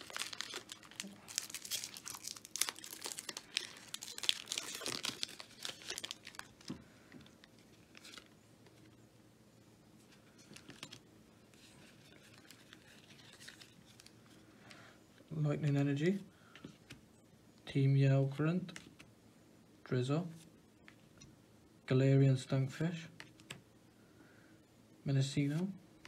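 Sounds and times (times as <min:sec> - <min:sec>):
foil wrappers crinkling and tearing: 0:00.0 - 0:08.3.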